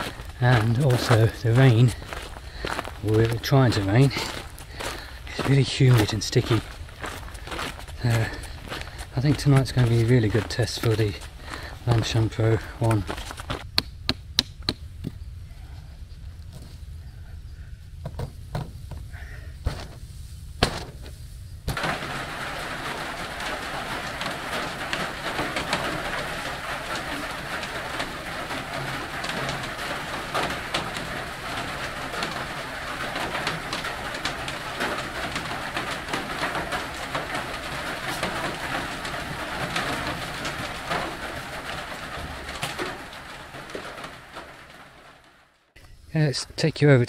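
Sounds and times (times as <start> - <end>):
rain on a metal roof: 0.0 - 13.7, 20.6 - 47.0
tent stake knocked into ground: 20.6 - 21.1.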